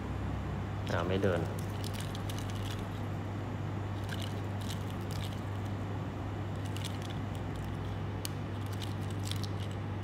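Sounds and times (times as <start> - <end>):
low electrical hum: 0.0 - 10.0
watch being shaken: 1.6 - 3.1, 4.0 - 5.7, 6.5 - 9.9.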